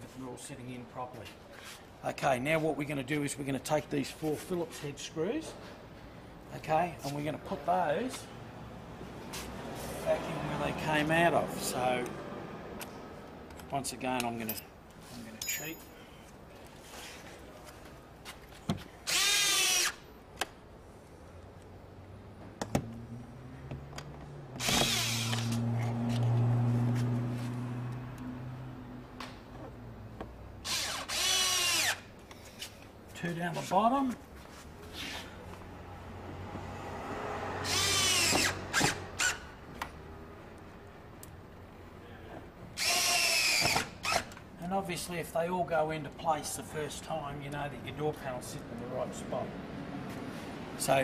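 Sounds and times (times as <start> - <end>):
cordless drill whirring: 19.0 - 20.0, 24.6 - 25.6, 30.6 - 32.1, 37.6 - 39.4, 42.8 - 44.3
electric screwdriver motor whine: 24.6 - 25.6, 37.7 - 39.4.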